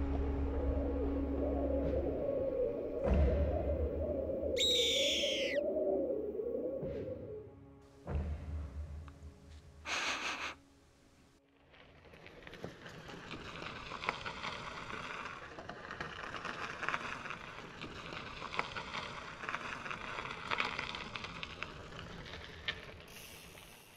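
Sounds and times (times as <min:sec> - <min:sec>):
bike tyres crunching over gravel: 0:11.4 - 0:23.9
stones ticking under wheels: 0:11.6 - 0:23.9.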